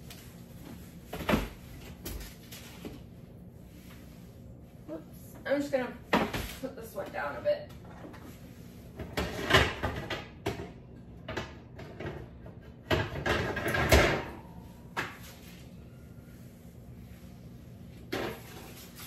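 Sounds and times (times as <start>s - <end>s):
metal pans clattering on oven racks: 12.9s - 14.4s.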